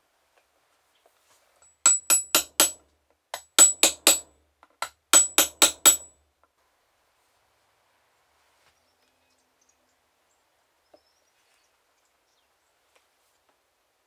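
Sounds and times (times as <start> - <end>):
hammer tapping metal punch: 1.7 - 2.8, 3.4 - 6.1.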